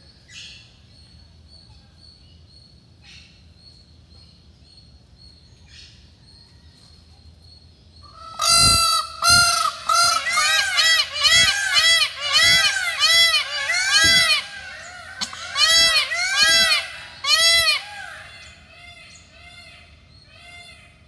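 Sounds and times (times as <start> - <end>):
peafowl honking cries: 8.0 - 21.0.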